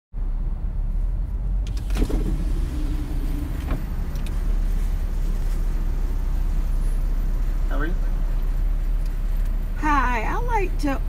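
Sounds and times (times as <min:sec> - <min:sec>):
car idling rumble: 0:00.2 - 0:11.0
power window motor humming: 0:01.6 - 0:04.8.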